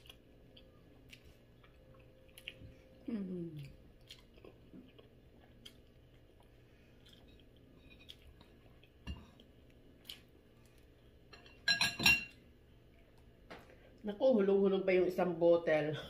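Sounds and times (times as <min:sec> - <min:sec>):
wet chewing mouth sounds: 0:00.0 - 0:10.3.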